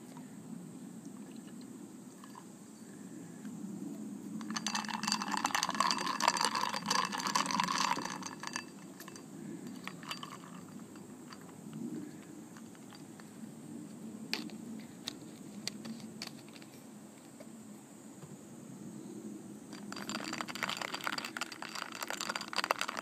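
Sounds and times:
ice cubes clinking in glass: 0:04.4 - 0:11.5, 0:19.8 - 0:23.0
soda fizzing: 0:04.5 - 0:09.1, 0:19.8 - 0:23.0.

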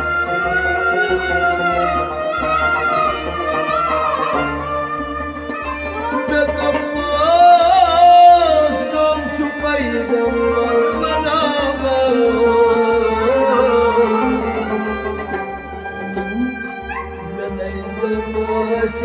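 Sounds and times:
sliding melody with wavering pitch: 0:00.0 - 0:18.7.

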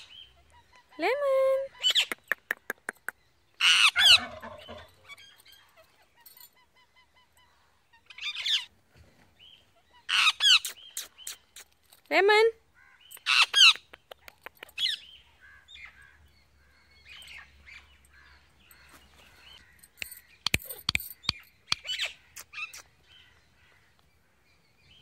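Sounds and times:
parakeet chattering and chirps: 0:10.1 - 0:11.7, 0:20.4 - 0:23.2
sharp clicks: 0:13.2 - 0:14.8, 0:19.9 - 0:22.9.

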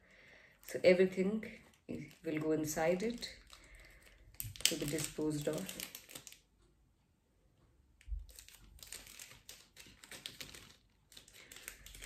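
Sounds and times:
plastic bag crinkling: 0:01.6 - 0:06.4, 0:08.1 - 0:12.0.

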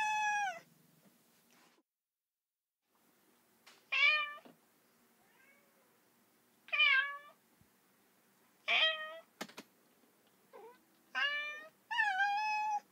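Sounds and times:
cat meowing: 0:00.0 - 0:00.7, 0:05.2 - 0:06.0, 0:06.7 - 0:07.4, 0:08.7 - 0:09.3, 0:10.5 - 0:12.9.

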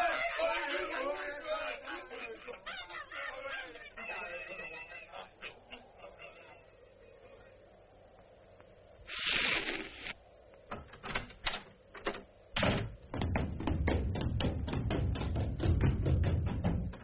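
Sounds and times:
cartoon hiss: 0:09.0 - 0:10.2
taps and knocks: 0:11.5 - 0:17.0.

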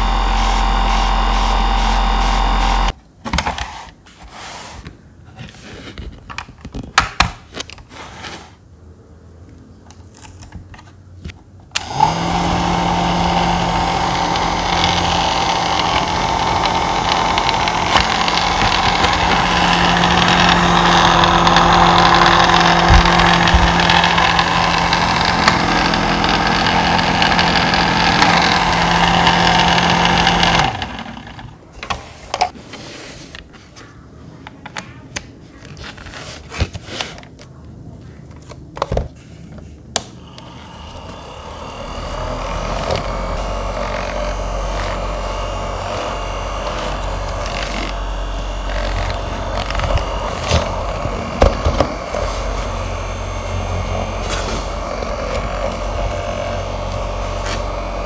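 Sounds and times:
desk fan motor hum: 0:00.0 - 0:03.0, 0:11.7 - 0:31.6, 0:40.2 - 0:58.0.

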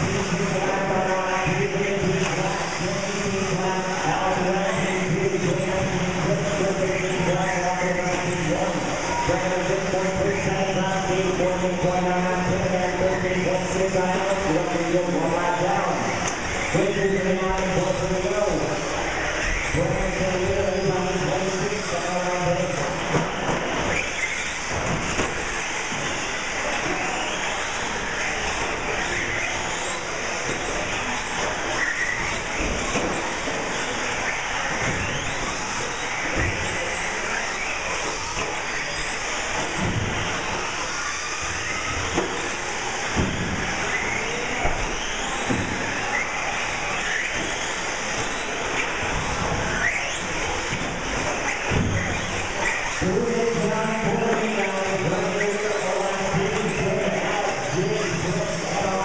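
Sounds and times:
rc trucks motor and tyre hiss: 0:21.0 - 0:53.0.

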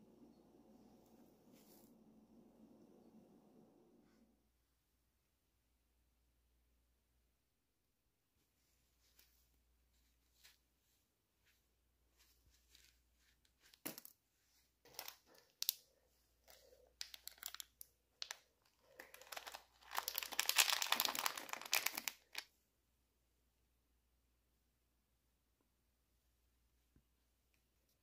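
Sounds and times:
plastic bag crinkling: 0:14.8 - 0:15.9, 0:16.5 - 0:22.5.

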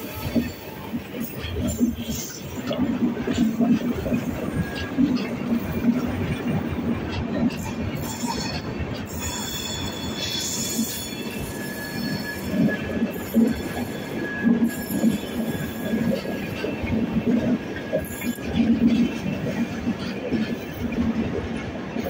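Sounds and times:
train wheels rumbling and clattering: 0:00.0 - 0:22.0
high-pitched wheel squeal: 0:08.0 - 0:16.4.

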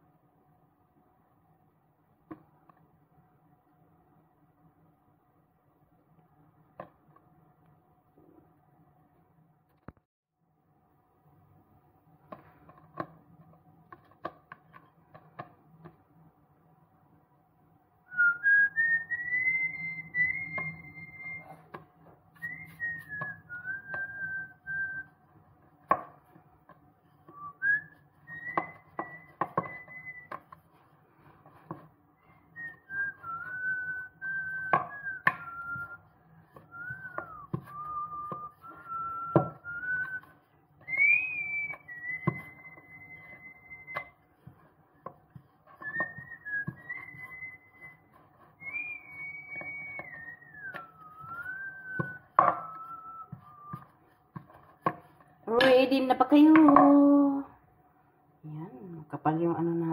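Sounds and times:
person whistling a tune: 0:18.1 - 0:21.7, 0:22.4 - 0:25.1, 0:27.3 - 0:30.5, 0:32.2 - 0:44.2, 0:45.8 - 0:53.9
rolling pin on wooden board: 0:25.6 - 0:55.8.

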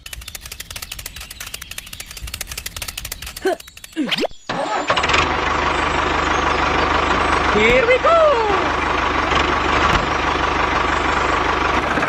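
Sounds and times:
fast even ticking: 0:00.0 - 0:04.2
small motor whining: 0:00.0 - 0:12.0.

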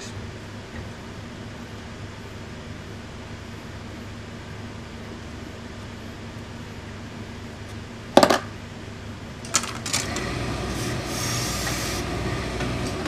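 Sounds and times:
steam iron hissing: 0:10.3 - 0:12.8.

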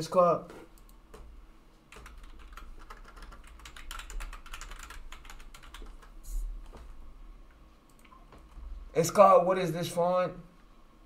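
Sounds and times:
computer keyboard typing: 0:01.9 - 0:06.8.

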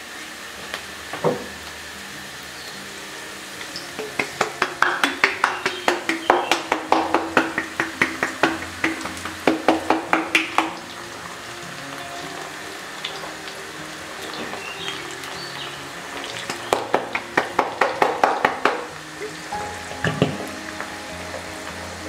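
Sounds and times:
garlic sizzling in oil: 0:00.0 - 0:22.0
hand slapping bottle: 0:04.0 - 0:10.8.

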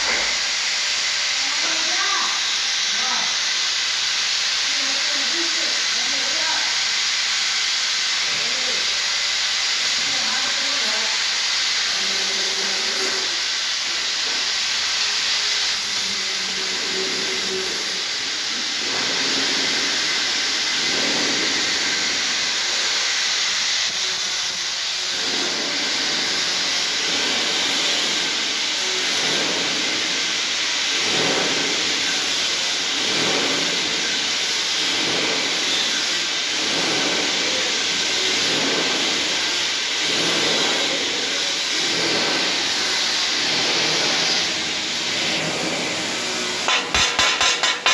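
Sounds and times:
welding arc burning: 0:00.0 - 0:47.9.

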